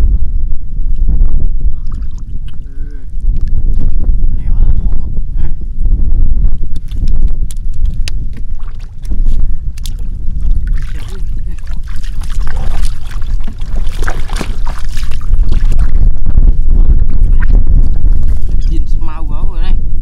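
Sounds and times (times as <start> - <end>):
wind rumbling on microphone: 0.0 - 20.0
splashing of shallow muddy water: 1.8 - 3.9, 6.8 - 16.1.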